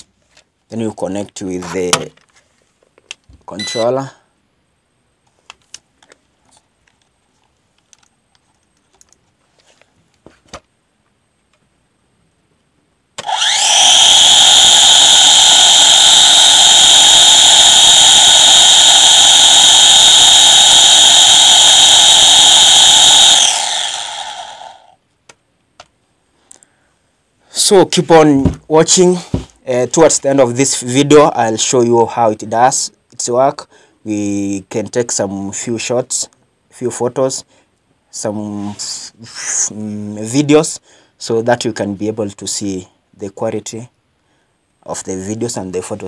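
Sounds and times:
drone propellers whining: 13.2s - 24.9s.

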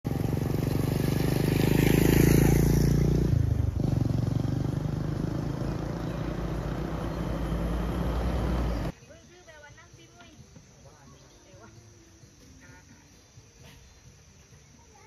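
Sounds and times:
engine running quietly: 0.1s - 8.9s
motorcycle passing by: 0.1s - 9.0s.

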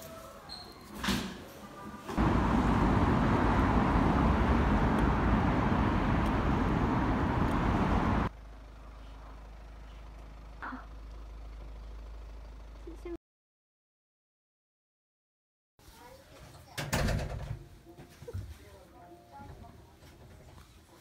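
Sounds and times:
street traffic noise: 2.0s - 13.2s
steady hum: 2.2s - 8.3s.

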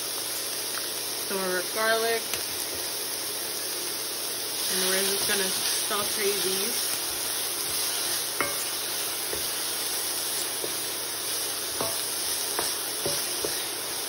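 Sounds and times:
vegetables sizzling in oil: 0.0s - 14.0s
wooden spoon knocking pan: 8.4s - 9.6s, 10.5s - 11.0s, 11.7s - 13.8s.

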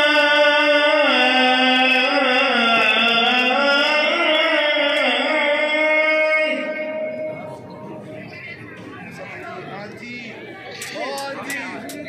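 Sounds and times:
man chanting call to prayer: 0.0s - 7.6s.

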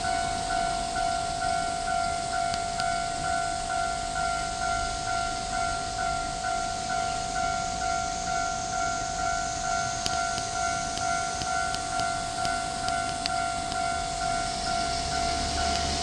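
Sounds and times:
level crossing warning bell: 0.0s - 16.0s.

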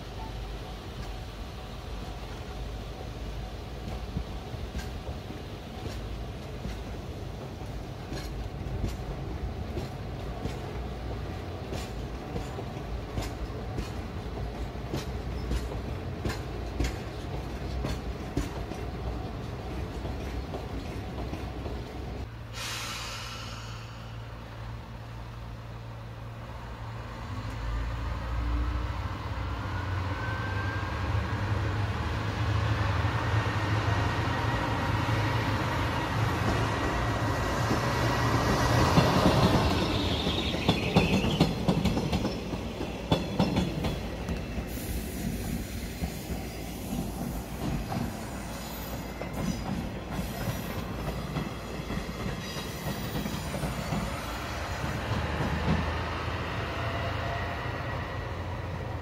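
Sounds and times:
diesel railcar engine drone: 0.0s - 59.0s
wheels clicking over rail joints: 1.9s - 22.3s, 37.6s - 56.0s.

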